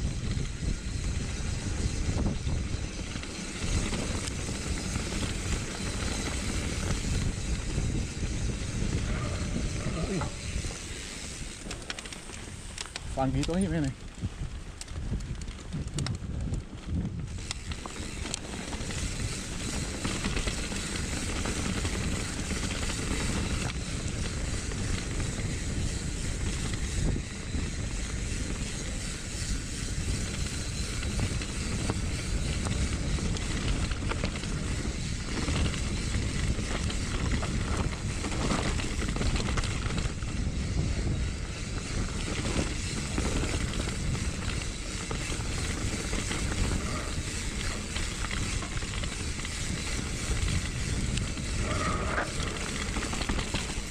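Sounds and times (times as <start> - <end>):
wind rushing over microphone: 0.0 - 53.9
rolling noise: 41.8 - 53.9.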